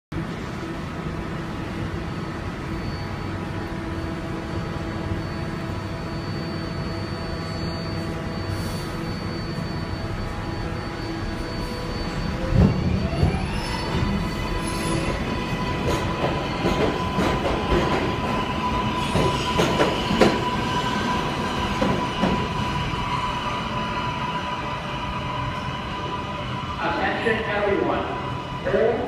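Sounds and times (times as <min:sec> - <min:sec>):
subway train equipment hum: 0:00.1 - 0:29.0
traction motors whining: 0:02.4 - 0:27.2.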